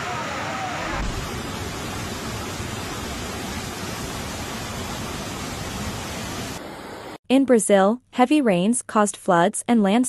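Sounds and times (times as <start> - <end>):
floodwater rushing: 0.0 - 7.2.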